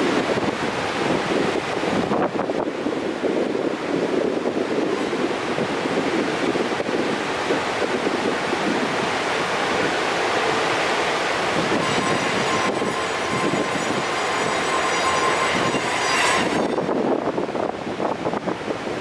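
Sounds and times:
train running past: 2.6 - 18.9
waterfall rushing: 4.7 - 18.0
train wheel squeal: 9.6 - 17.8.

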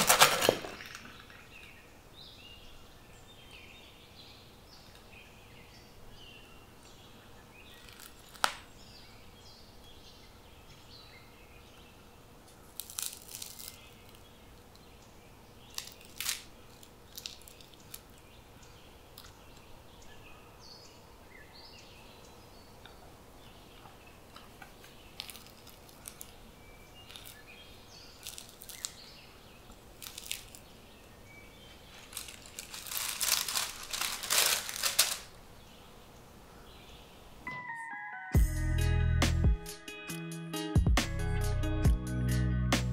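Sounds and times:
crusty bread crackling and crunching: 0.0 - 1.7, 7.6 - 8.8, 12.4 - 14.9, 15.6 - 18.4, 23.7 - 35.4
plastic bag crinkling: 0.0 - 1.8, 7.7 - 8.7, 12.6 - 14.3, 15.7 - 18.3, 24.7 - 35.4.

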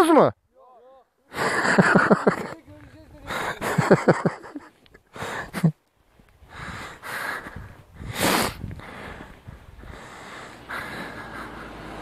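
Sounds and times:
rushing air on microphone: 6.4 - 12.0
motorcycle running faintly: 10.1 - 12.0.

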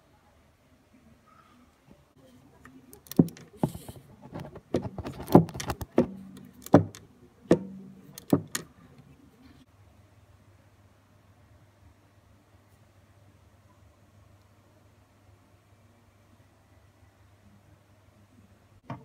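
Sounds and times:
metallic knocks: 4.6 - 8.6.

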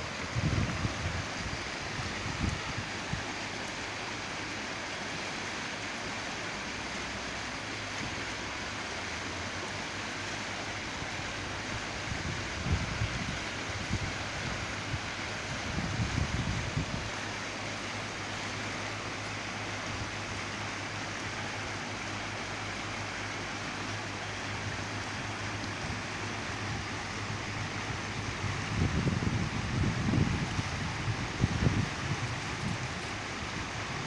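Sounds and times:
wind buffeting microphone: 0.0 - 3.6, 11.0 - 18.2, 24.3 - 34.0
outdoor hiss: 0.0 - 34.0.

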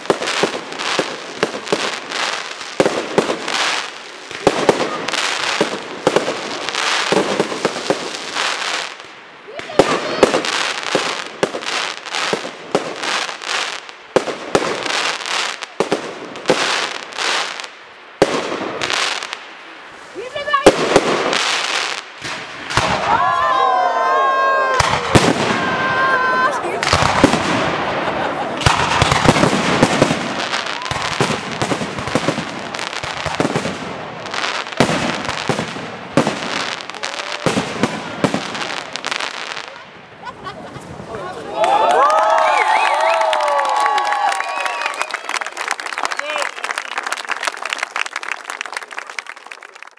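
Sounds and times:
fireworks popping: 0.0 - 23.2, 24.8 - 25.9, 26.7 - 41.1
fireworks bangs: 0.0 - 41.2
firework shells bursting: 28.6 - 39.4.

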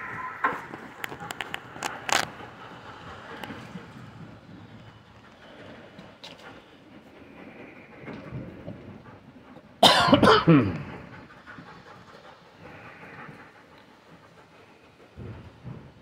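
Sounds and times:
man coughing: 9.8 - 10.8.

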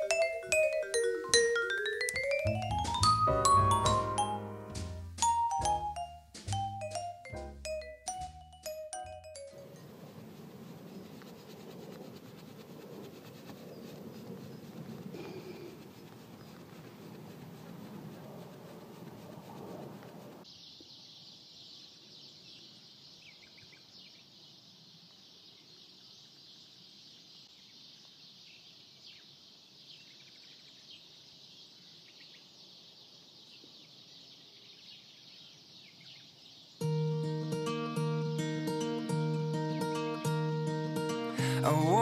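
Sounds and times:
steady high-pitched hiss: 0.0 - 22.1
coarse rustling: 9.7 - 20.4
bird chirps: 20.4 - 41.2.

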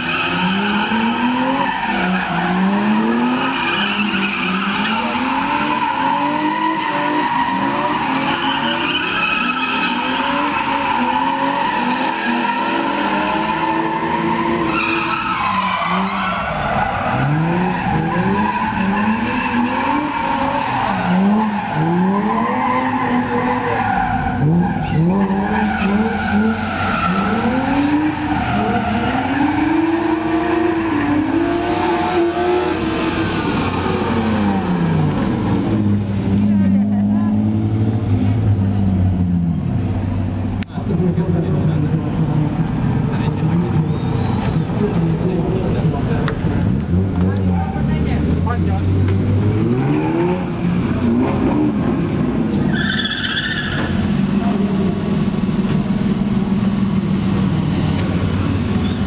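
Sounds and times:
tyres squealing: 0.0 - 35.8, 52.4 - 54.8
car engines revving: 0.0 - 59.0.

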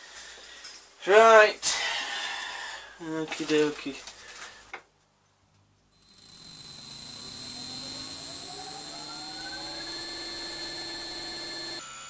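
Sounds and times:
milling machine motor running: 6.0 - 11.8
high-pitched whine: 6.0 - 12.0.

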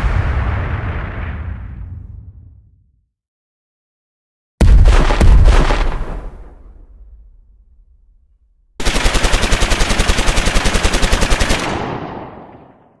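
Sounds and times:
boom: 0.0 - 3.0, 4.6 - 8.4
machine-gun fire: 4.6 - 6.8, 8.8 - 13.0.

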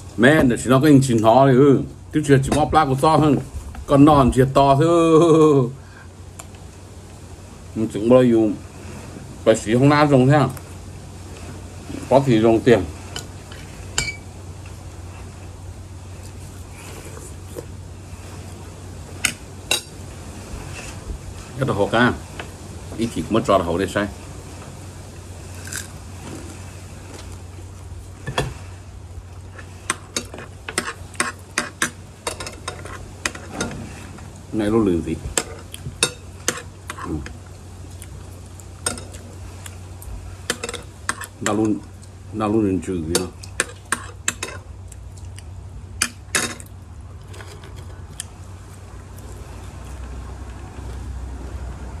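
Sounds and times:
steady low hum: 0.0 - 52.0
eating sounds: 36.6 - 40.4, 43.3 - 45.6.

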